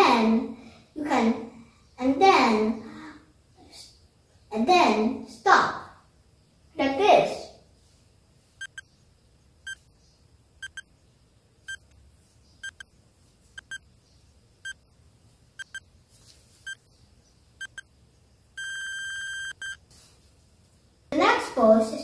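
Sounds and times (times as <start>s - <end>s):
long electronic beep: 18.6s - 19.8s.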